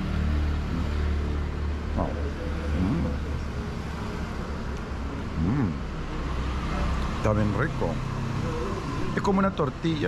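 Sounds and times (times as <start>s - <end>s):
road traffic hum: 0.0s - 10.0s.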